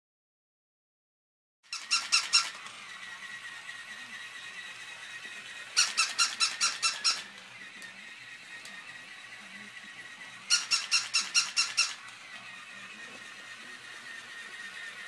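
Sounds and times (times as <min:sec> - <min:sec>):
toy dog electronic yips: 0:01.7 - 0:03.1, 0:05.6 - 0:07.4, 0:10.4 - 0:12.1.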